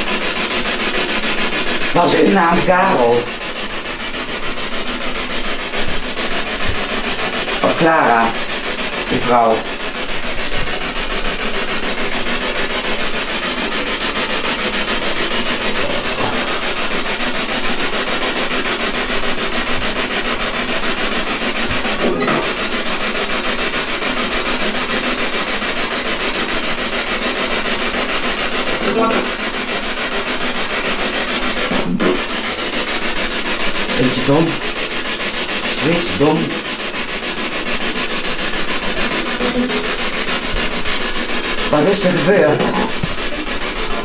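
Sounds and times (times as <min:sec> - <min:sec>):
harsh radio static: 0:01.1 - 0:18.1, 0:28.7 - 0:29.5, 0:33.8 - 0:44.0.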